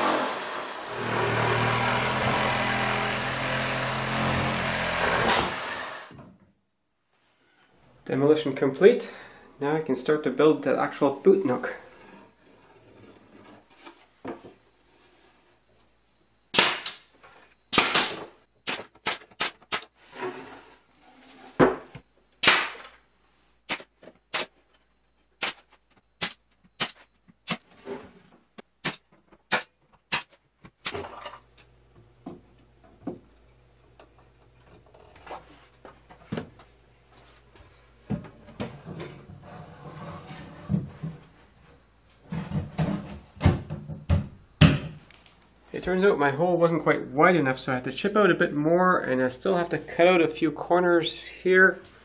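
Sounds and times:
nail gun firing: 5.0s - 5.8s, 16.5s - 17.1s, 17.7s - 19.9s, 22.4s - 23.0s, 23.7s - 24.5s, 25.4s - 25.6s, 26.2s - 27.6s, 28.8s - 31.0s.

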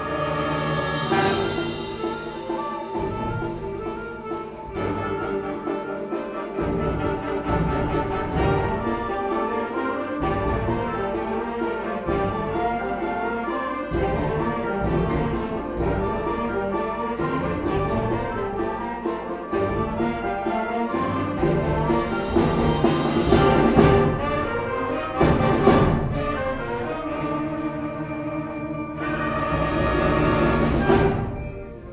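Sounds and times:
concert band playing: 0.0s - 31.9s.

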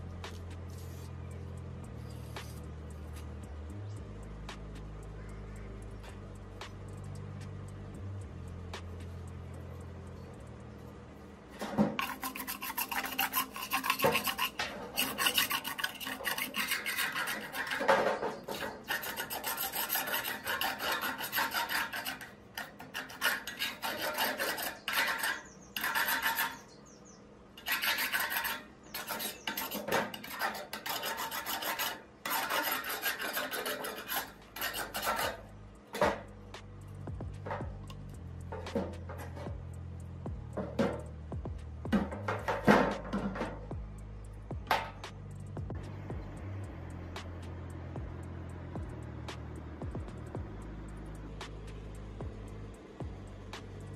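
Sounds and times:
screwdriver scraping rusty metal: 11.5s - 27.0s, 27.6s - 39.7s, 41.9s - 43.8s.

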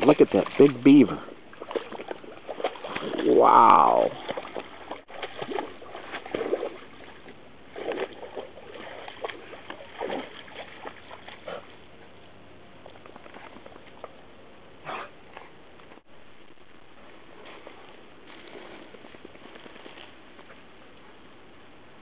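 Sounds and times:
lake water splashing and lapping: 0.0s - 16.1s, 17.0s - 21.4s.

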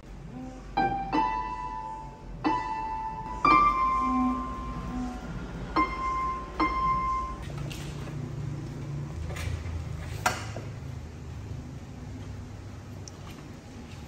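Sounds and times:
electronic keyboard notes: 0.1s - 7.6s.

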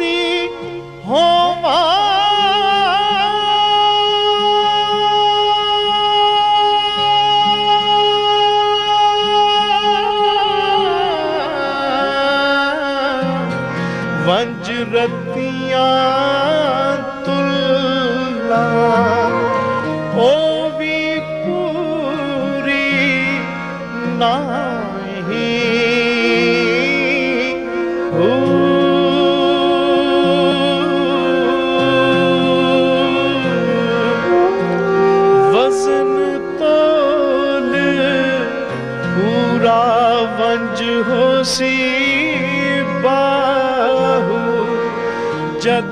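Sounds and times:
harmonium chords: 0.0s - 45.9s
man singing: 0.0s - 45.9s
sarangi: 0.0s - 45.9s.

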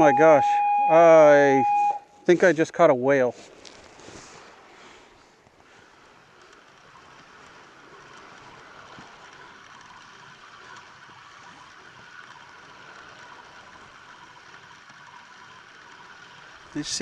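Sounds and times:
water rushing against a kayak hull: 3.4s - 17.0s.

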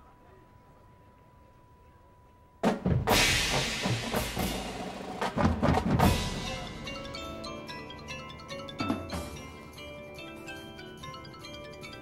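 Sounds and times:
drum and cymbal hits: 2.6s - 7.2s
marimbas ringing: 6.0s - 12.0s.

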